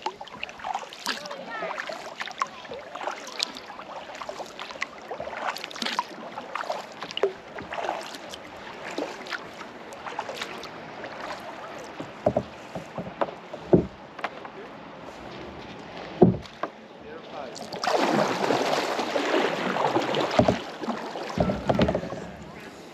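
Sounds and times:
water washing: 0:00.0 - 0:14.4, 0:15.0 - 0:22.9
water dripping off paddle: 0:00.0 - 0:14.5, 0:17.5 - 0:22.5
paddle splashing: 0:00.0 - 0:22.9
sharp knocks: 0:12.2 - 0:14.4, 0:16.2 - 0:16.7.

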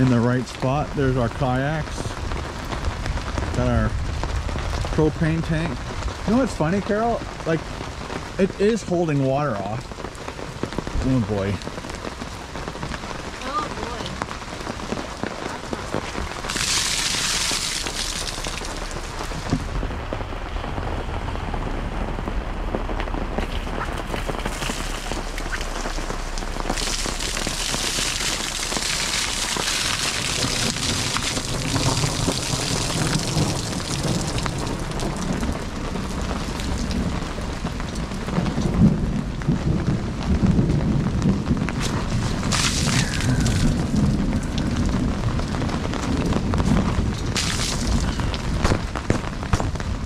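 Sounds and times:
heavy rain on a canopy: 0:00.0 - 0:50.0
runoff pouring off canopy: 0:00.0 - 0:50.0
low rumble: 0:10.7 - 0:50.0.

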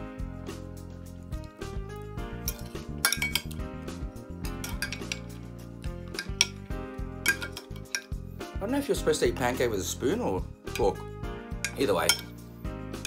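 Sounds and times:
background music: 0:00.0 - 0:13.0
cutlery clinking on a ceramic plate: 0:02.4 - 0:03.6, 0:04.5 - 0:05.5, 0:06.1 - 0:08.2, 0:10.7 - 0:11.0, 0:11.6 - 0:12.4.

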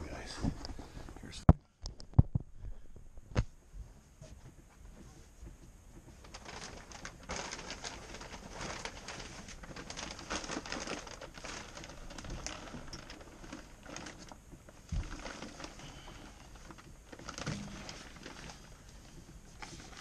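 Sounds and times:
plastic film crinkling: 0:06.2 - 0:20.0.

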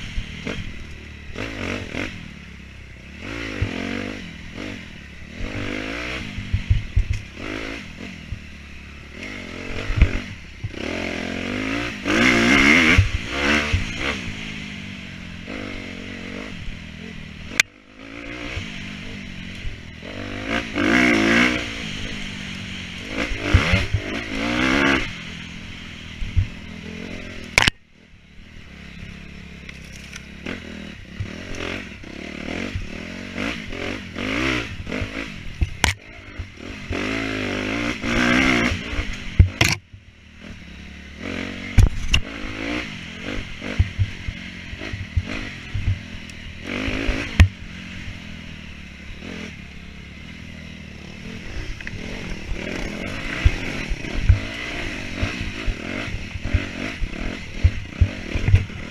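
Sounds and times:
dirt bike engine revving: 0:00.0 - 0:58.9
knocks and clatter from bike: 0:03.5 - 0:03.9, 0:06.4 - 0:07.5, 0:09.7 - 0:10.9, 0:26.2 - 0:26.6, 0:31.1 - 0:31.7, 0:34.2 - 0:37.1, 0:38.1 - 0:40.1, 0:41.7 - 0:42.4, 0:43.3 - 0:46.1, 0:46.7 - 0:47.7, 0:51.6 - 0:58.9.

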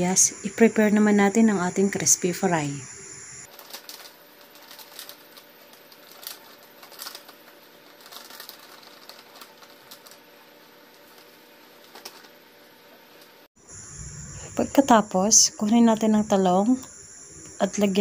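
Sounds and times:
steady low hiss: 0:00.0 - 0:03.5, 0:13.6 - 0:18.0
plastic sachet crinkling: 0:03.5 - 0:12.4.

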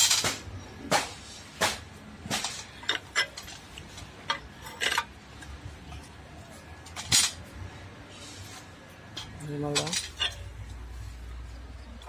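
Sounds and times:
metallic clanks and clinks: 0:00.0 - 0:00.4, 0:02.3 - 0:06.0, 0:06.8 - 0:07.6, 0:09.1 - 0:10.8.

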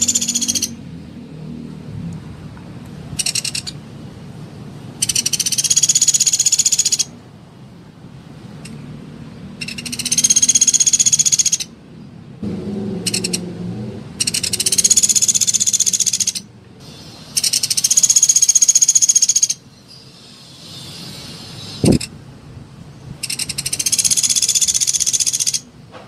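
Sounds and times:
woodpecker rattling trills: 0:00.0 - 0:00.8, 0:03.2 - 0:03.8, 0:05.0 - 0:07.1, 0:09.6 - 0:11.7, 0:13.1 - 0:13.4, 0:14.2 - 0:16.5, 0:17.3 - 0:19.6, 0:23.2 - 0:25.7.

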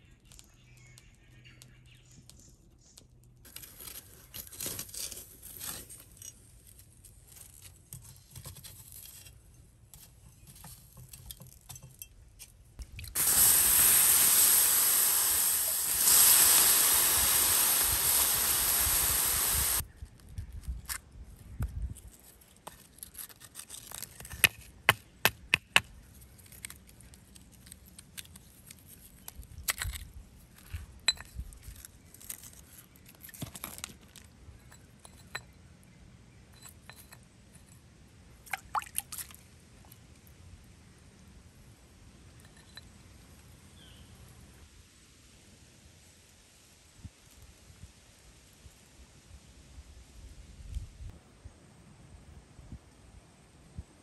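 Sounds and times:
water rushing over hot iron: 0:13.2 - 0:19.8.

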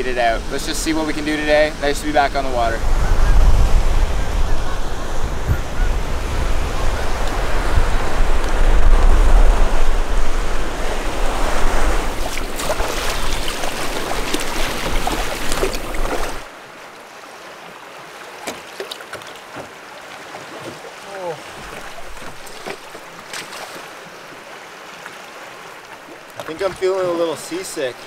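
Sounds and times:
wind buffeting microphone: 0:00.0 - 0:16.5.

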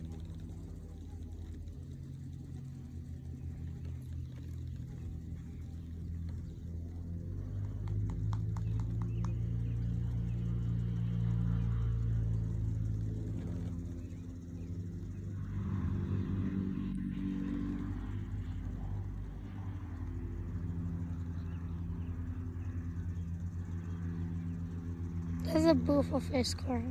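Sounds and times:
low engine hum: 0:00.0 - 0:26.9.

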